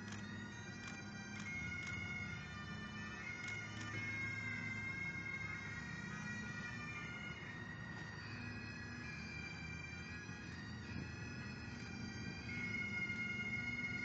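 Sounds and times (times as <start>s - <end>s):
bagpipes playing: 0.0s - 14.0s.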